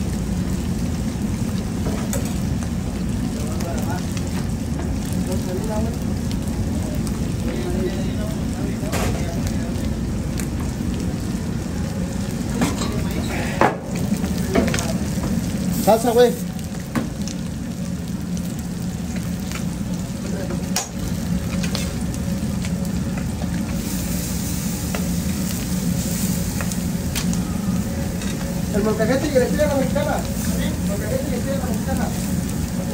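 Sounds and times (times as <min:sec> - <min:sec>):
food sizzling on a griddle: 0:00.0 - 0:32.9
steady low hum: 0:00.0 - 0:32.9
salsa hissing in hot stone bowl: 0:13.0 - 0:14.3, 0:15.5 - 0:16.6, 0:23.6 - 0:32.9.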